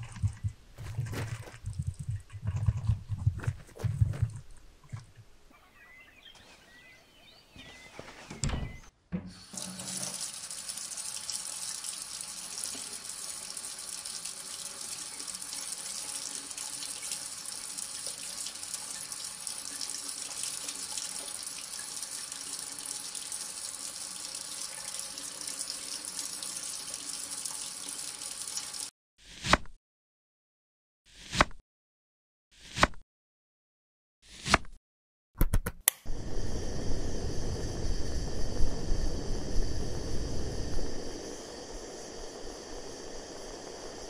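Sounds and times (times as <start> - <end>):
tap water pouring into bucket: 0.0 - 5.1, 9.4 - 28.9.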